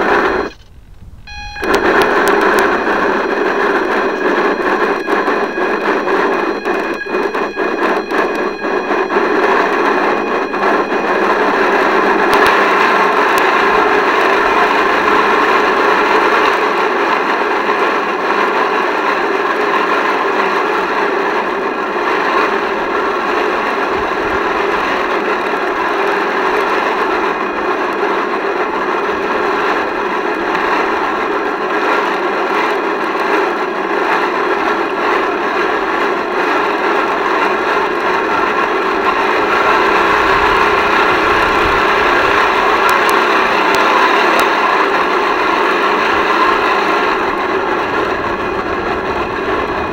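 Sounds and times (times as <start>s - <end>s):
sharp clicks: 0.5s - 12.6s.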